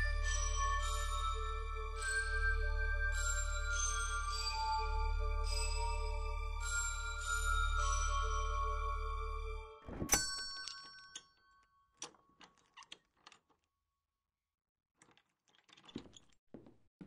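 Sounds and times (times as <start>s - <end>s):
metallic ding chime: 9.9s - 11.4s
light metallic clicks and rattles: 12.0s - 13.7s.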